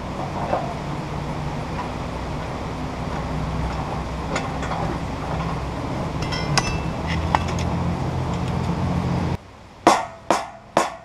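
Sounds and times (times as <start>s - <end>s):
steady low rumble: 0.0s - 10.4s
metallic clinks and ticks: 6.2s - 7.7s.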